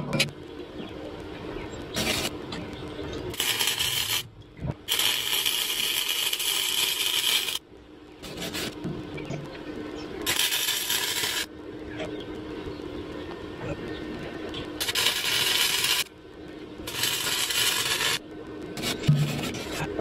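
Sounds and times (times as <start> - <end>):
faint steady hum: 0.0 - 20.0
arc welder crackling hiss: 1.9 - 7.6, 8.2 - 8.9, 10.0 - 11.5, 14.6 - 19.9.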